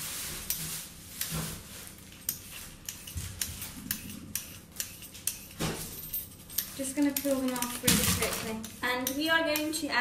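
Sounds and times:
vegetable peeler scraping skin: 0:02.3 - 0:05.6.

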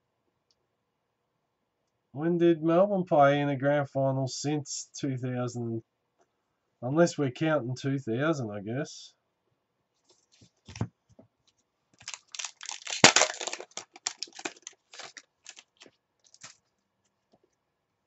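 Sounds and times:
cards clicking: 0:12.0 - 0:16.6
wrapper crinkling: 0:12.0 - 0:16.7
wrapper ripping: 0:12.0 - 0:16.7.

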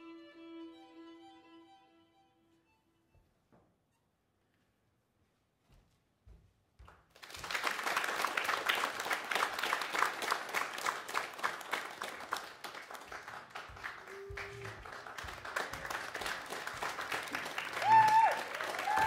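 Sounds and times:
audience applause: 0:07.2 - 0:19.0.

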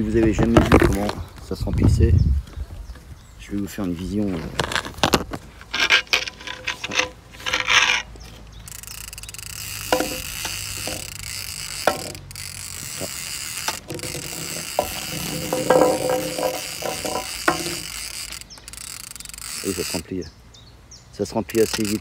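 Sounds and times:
reel sharp clicks: 0:04.7 - 0:20.2, 0:21.4 - 0:22.0
fishing reel whirring: 0:05.7 - 0:20.2, 0:21.5 - 0:22.0.

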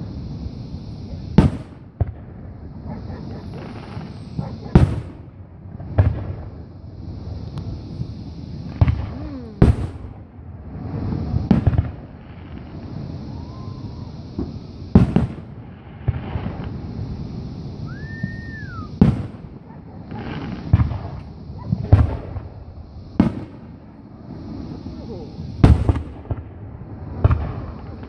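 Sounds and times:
firework shells bursting: 0:03.2 - 0:06.6, 0:11.2 - 0:23.8.

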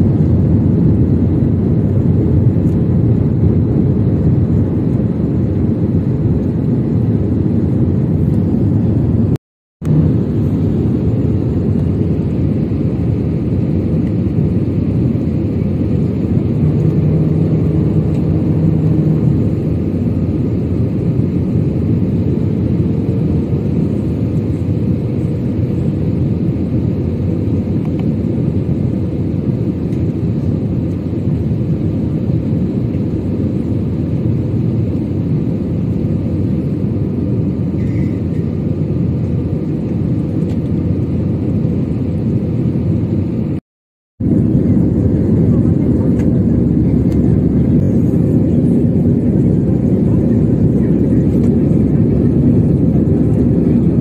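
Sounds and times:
rushing airflow: 0:00.0 - 0:24.1
low hum: 0:00.0 - 0:34.6, 0:44.2 - 0:54.0
jet engines rumbling in cabin: 0:00.0 - 0:43.6, 0:44.2 - 0:54.0.

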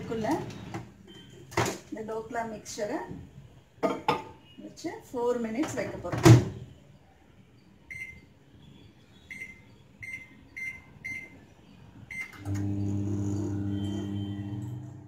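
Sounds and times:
microwave keypad beeping: 0:00.4 - 0:01.5, 0:07.8 - 0:08.3, 0:09.2 - 0:14.8
microwave running hum: 0:12.1 - 0:15.0.

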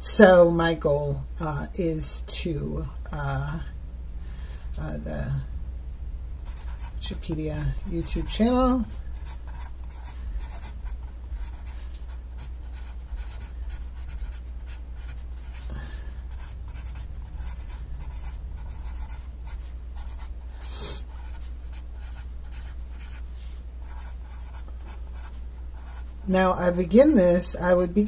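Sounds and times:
steady low hum: 0:00.0 - 0:28.0
pencil scratching on paper: 0:06.5 - 0:27.0.

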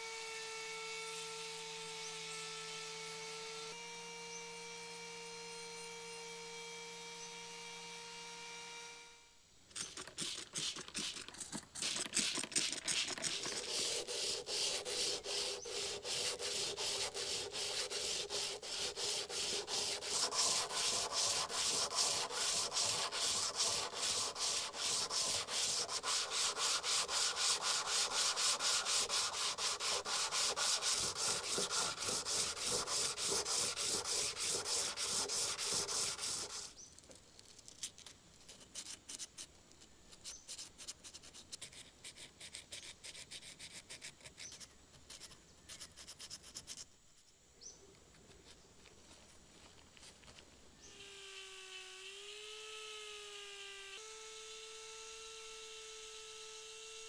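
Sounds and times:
blade scraping on whetstone: 0:09.8 - 0:36.7.

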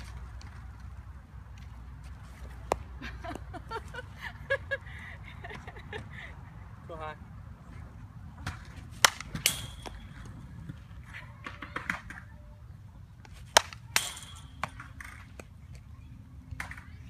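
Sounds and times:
bat hitting ball: 0:08.4 - 0:10.8, 0:13.2 - 0:15.4.

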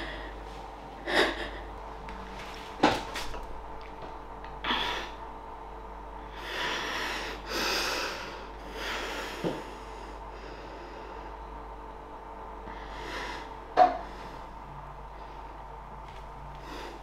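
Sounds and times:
woman breathing heavily: 0:00.0 - 0:01.9, 0:04.6 - 0:05.3, 0:06.2 - 0:11.6, 0:12.6 - 0:15.8, 0:16.5 - 0:17.0.

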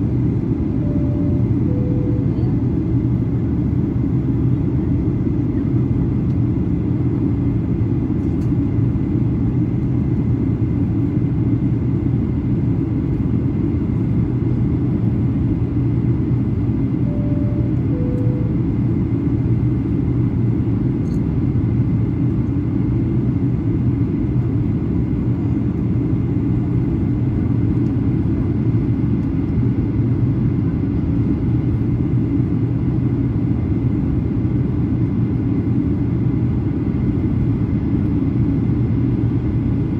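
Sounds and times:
airplane cabin rumble: 0:00.0 - 0:39.9
two-tone cabin chime: 0:00.8 - 0:02.6, 0:17.0 - 0:18.7.

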